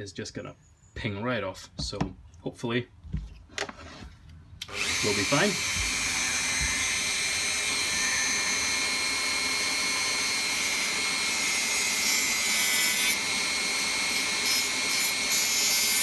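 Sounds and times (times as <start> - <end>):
rotary tool motor whine: 4.6 - 16.0.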